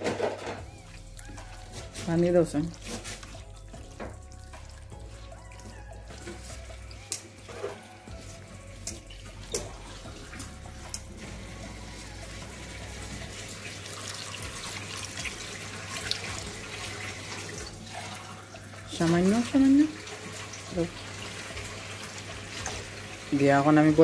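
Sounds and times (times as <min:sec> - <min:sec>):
water pouring into pan: 0:00.6 - 0:24.0
hand squishing fish paste: 0:00.8 - 0:11.1.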